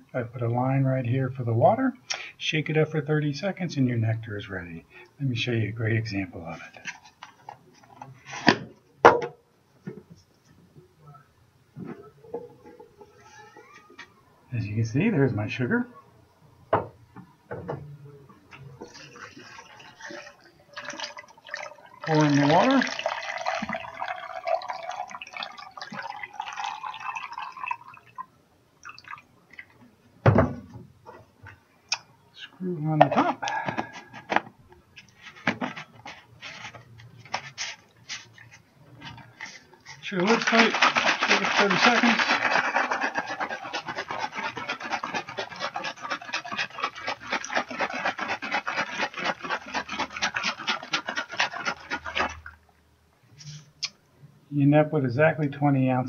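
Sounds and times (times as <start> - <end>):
water pouring into plastic bottle: 18.8 - 28.2, 28.8 - 29.8, 35.4 - 52.6
water dripping: 19.2 - 29.8.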